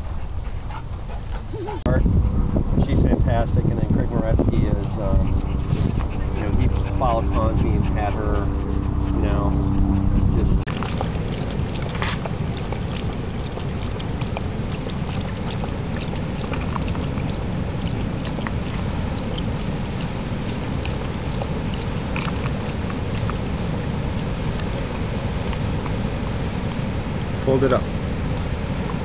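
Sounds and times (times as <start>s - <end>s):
dog lapping water: 0.0s - 29.0s
wind rumble on microphone: 0.0s - 29.0s.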